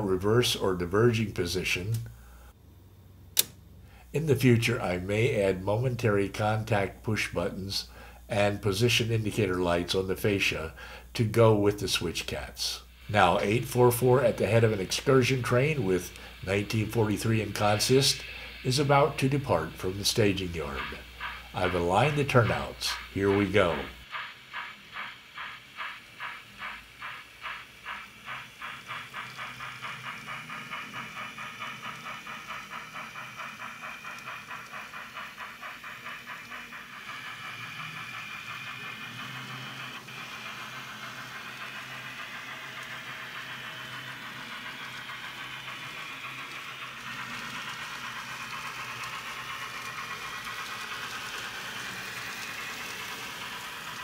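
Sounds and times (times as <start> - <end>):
model steam locomotive chuffing: 0.0 - 54.0.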